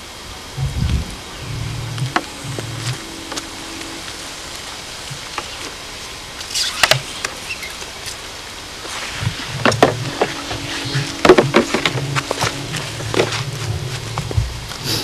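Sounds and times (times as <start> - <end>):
water spraying from hose nozzle: 5.2 - 10.8.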